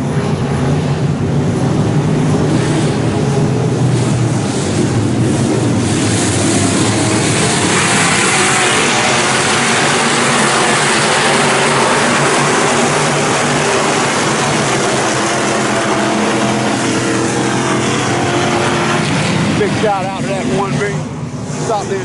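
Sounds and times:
race car engines running: 0:00.0 - 0:22.0.

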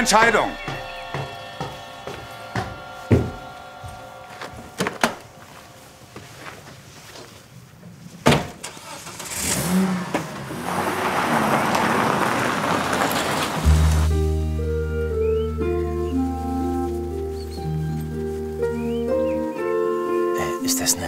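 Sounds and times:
car engine starting and pulling away: 0:08.5 - 0:19.9.

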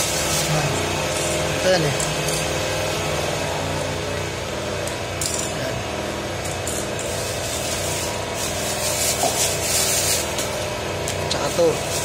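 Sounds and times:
portable generator engine running: 0:00.0 - 0:12.0
plastic parts scraping on tiles: 0:07.0 - 0:10.6.

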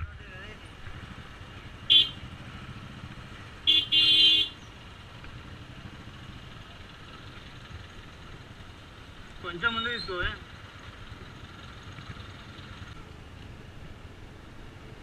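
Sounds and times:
vehicle horn tooting: 0:01.9 - 0:02.2, 0:03.7 - 0:04.6.

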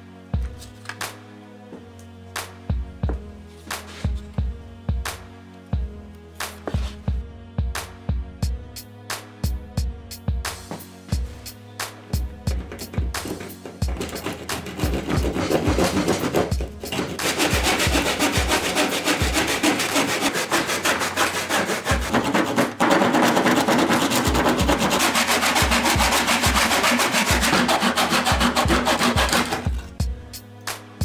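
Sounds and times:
hand saw cutting wood: 0:12.5 - 0:30.0.

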